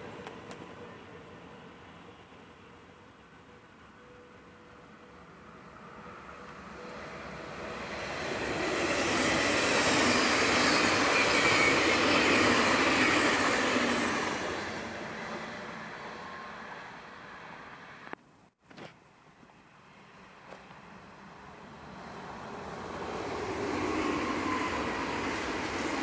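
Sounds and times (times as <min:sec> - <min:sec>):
train wheels rushing on rail: 0:04.6 - 0:18.1, 0:21.4 - 0:26.0.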